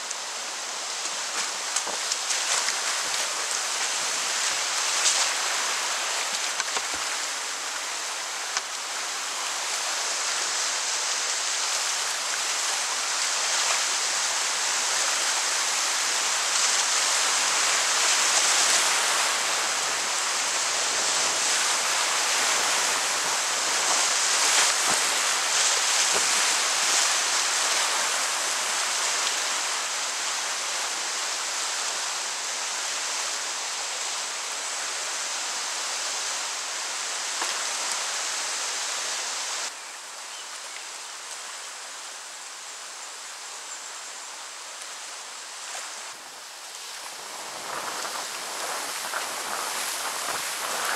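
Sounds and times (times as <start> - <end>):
river rapids rushing: 0.0 - 39.7, 44.4 - 50.9
paddle splashes: 0.8 - 30.6, 45.5 - 50.9.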